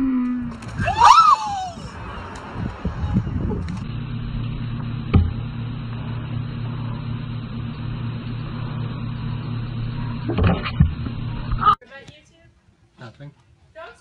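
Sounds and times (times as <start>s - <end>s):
steady low hum: 0.0s - 11.8s
sharp thump: 5.1s - 5.4s.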